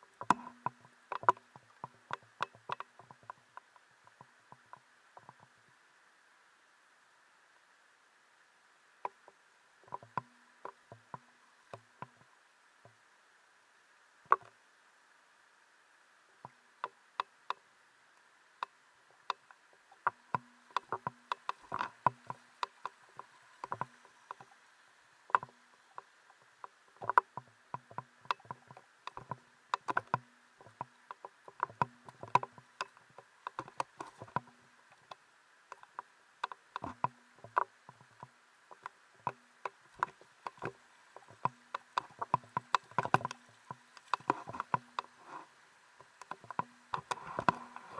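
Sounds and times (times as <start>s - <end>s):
steady faint hiss: 0.0s - 47.9s
footsteps on stream-bed rocks: 36.8s - 47.9s.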